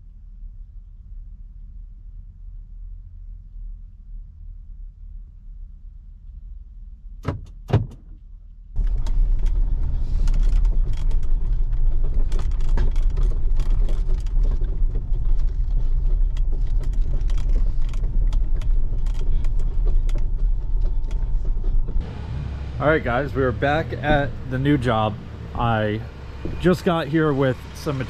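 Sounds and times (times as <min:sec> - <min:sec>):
truck engine and road noise: 0:06.8 - 0:28.0
small clicks and rattles: 0:08.8 - 0:22.1.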